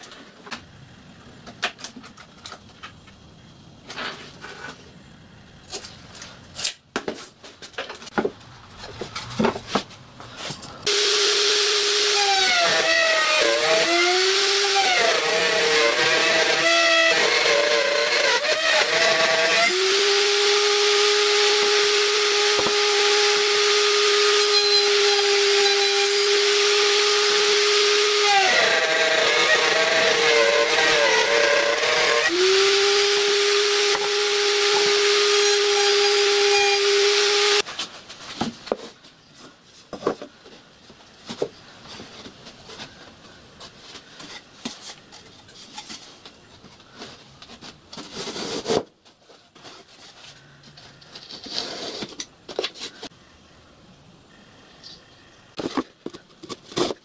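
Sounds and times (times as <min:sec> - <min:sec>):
circular saw whining: 0:10.8 - 0:37.6.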